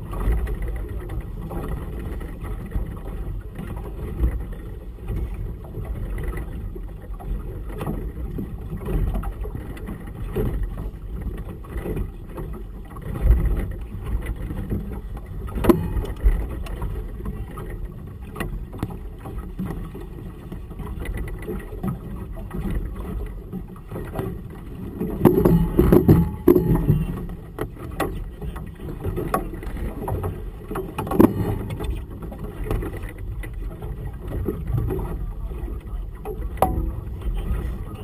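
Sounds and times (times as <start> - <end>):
waves slapping a boat hull: 0.0 - 38.0
wind on microphone: 0.0 - 38.0
knocks on boat: 7.8 - 17.0, 24.0 - 35.2, 36.2 - 37.9.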